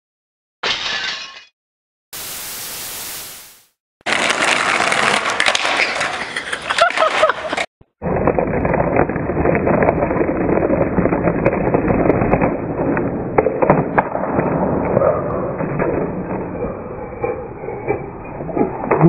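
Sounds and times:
skateboard wheels rolling on concrete: 4.0 - 19.0
skateboard clacks and knocks: 4.1 - 19.0.

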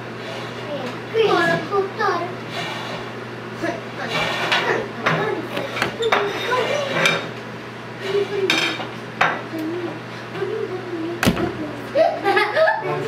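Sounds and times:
plates and cutlery clinking: 4.1 - 7.4, 8.1 - 9.4.

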